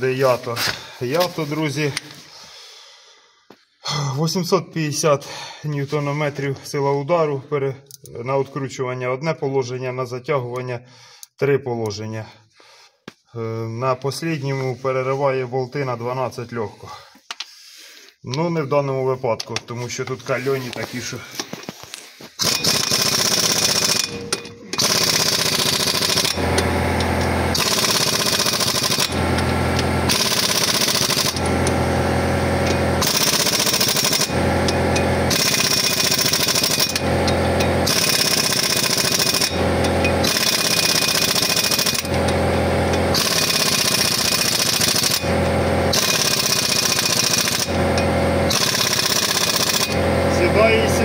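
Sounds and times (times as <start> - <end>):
pneumatic impact wrench hammering: 22.3 - 50.9.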